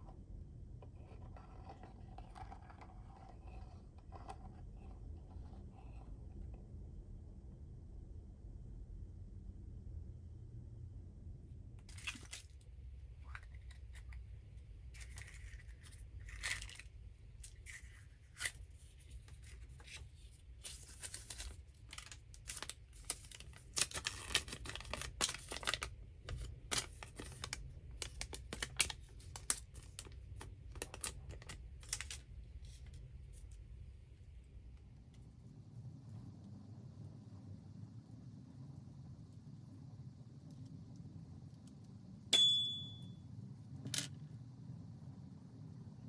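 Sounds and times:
paper wrapping crinkling and tearing: 20.6s - 32.9s.

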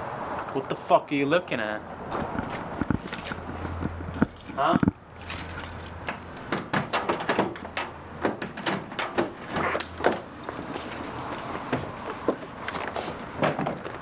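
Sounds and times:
keys jingling: 3.0s - 6.2s, 6.8s - 11.7s.

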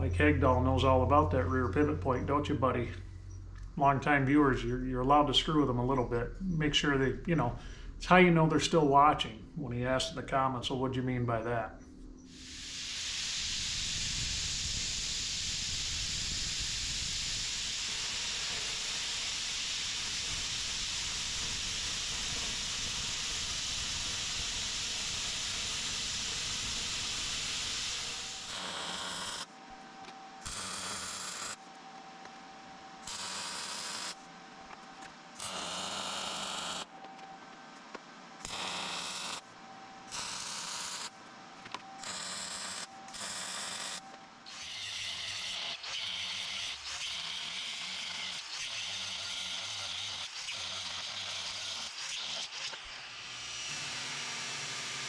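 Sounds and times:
plasma cutter hissing: 12.3s - 29.4s, 38.4s - 39.4s, 40.1s - 41.1s
welder bursts: 12.3s - 29.5s, 30.4s - 31.6s, 33.0s - 34.2s, 35.3s - 36.9s, 38.4s - 39.5s, 40.1s - 41.2s, 42.0s - 55.0s.

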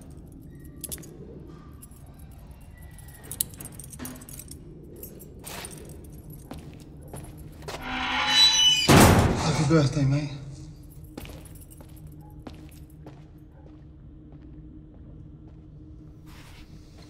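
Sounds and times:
key unlocking handcuffs: 0.0s - 6.8s
handcuffs clicking and jingling: 0.0s - 7.5s
steady low hum: 0.0s - 17.0s.

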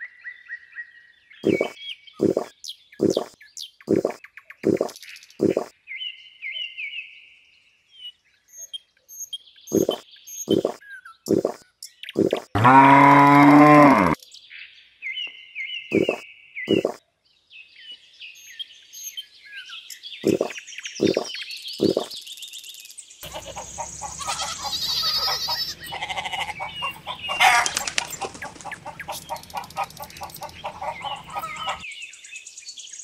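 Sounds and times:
birds chirping: 1.4s - 5.7s, 9.2s - 14.2s, 15.9s - 17.0s, 18.4s - 32.3s
rapid repeated bird calls: 1.4s - 5.8s, 8.6s - 14.2s, 15.8s - 17.0s, 18.4s - 32.4s
short low calls: 12.6s - 14.2s.

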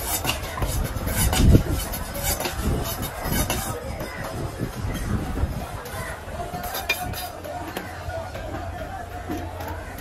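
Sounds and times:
knife scraping through fish: 0.0s - 3.8s, 6.6s - 7.4s.

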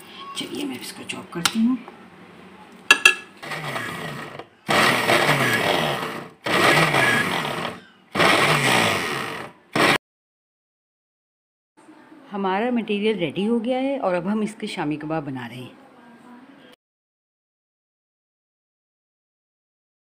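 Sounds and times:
electric food chopper grinding: 3.4s - 10.0s.

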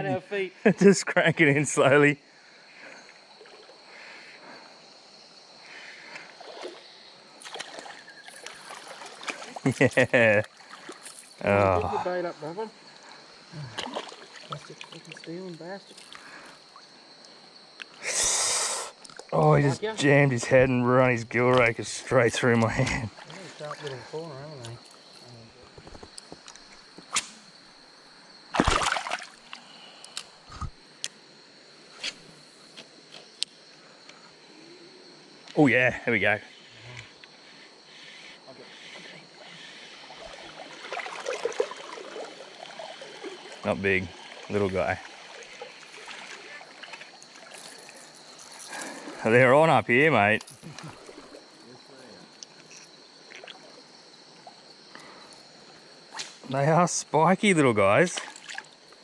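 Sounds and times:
creek water flowing: 5.5s - 25.6s, 26.5s - 31.3s, 35.0s - 56.1s, 57.4s - 59.0s
fish splashing: 7.4s - 9.7s, 28.5s - 29.6s, 39.6s - 49.2s.

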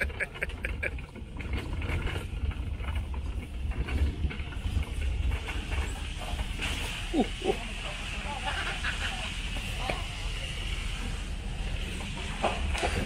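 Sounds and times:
clicks and rattles: 0.0s - 7.0s
pickup truck deep rumble: 0.0s - 13.0s.

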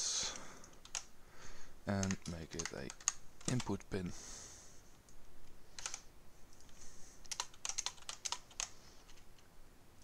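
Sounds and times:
keyboard typing: 0.6s - 1.1s, 1.9s - 3.8s, 5.7s - 9.5s.

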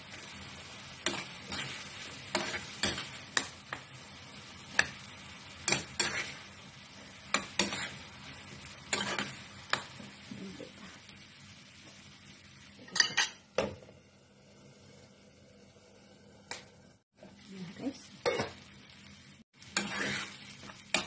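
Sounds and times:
food sizzling: 0.0s - 21.0s
spoon scraping a frying pan: 1.0s - 3.8s, 5.6s - 6.6s, 7.3s - 10.0s, 12.8s - 13.5s, 19.6s - 21.0s.

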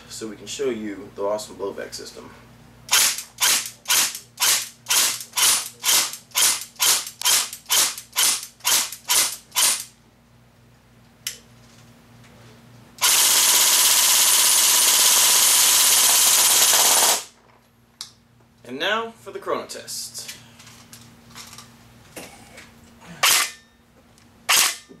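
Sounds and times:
airsoft gun firing: 13.0s - 17.3s, 24.5s - 24.8s.

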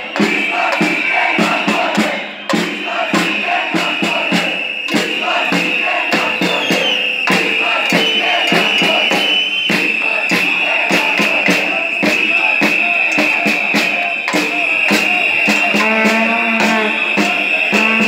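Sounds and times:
crowd chanting and shouting: 0.0s - 18.0s
fast regular drum beat: 0.0s - 18.0s
high shrill tone: 14.3s - 18.0s.

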